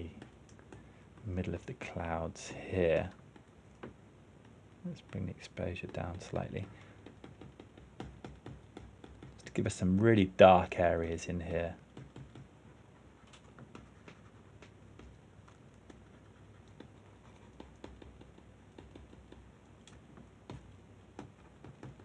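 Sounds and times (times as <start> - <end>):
computer mouse and keyboard clicks: 13.2 - 22.0.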